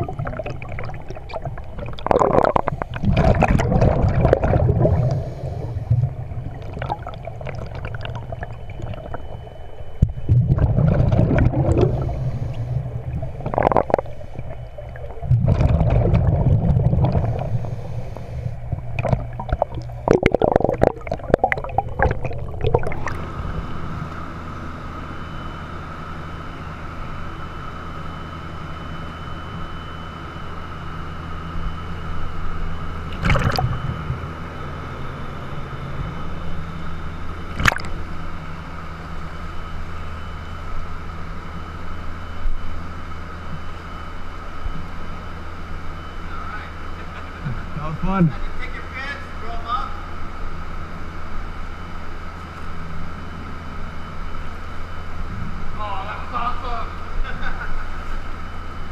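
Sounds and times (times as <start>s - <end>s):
diver exhaling bubbles: 0.0s - 9.4s, 10.1s - 23.6s, 33.1s - 34.3s
crackling bubble noise: 0.0s - 23.7s, 33.1s - 34.3s, 37.5s - 38.2s
steady hum with faint tone: 0.0s - 58.9s.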